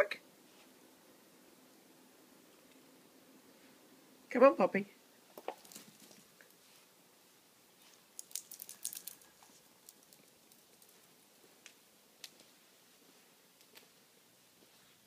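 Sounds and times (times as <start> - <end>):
dog toenails clicking on hard floor: 5.4 - 6.3, 7.9 - 12.5.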